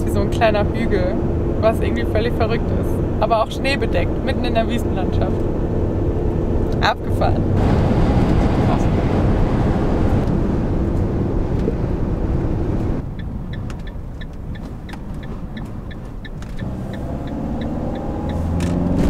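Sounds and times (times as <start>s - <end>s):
van engine and road noise: 0.0s - 19.0s
turn-signal relay ticking: 13.0s - 18.4s.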